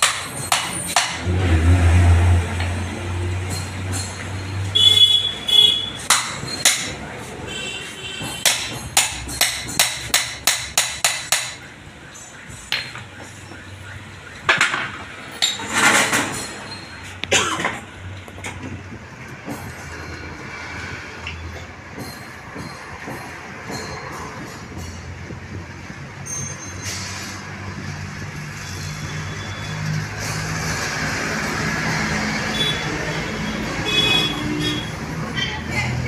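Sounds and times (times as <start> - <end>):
hammer striking metal: 0.0 - 1.4, 5.7 - 7.1, 8.2 - 13.2, 21.3 - 25.1
metal clinks and scrapes: 2.8 - 4.7, 6.0 - 7.4, 15.3 - 17.2, 26.2 - 27.5.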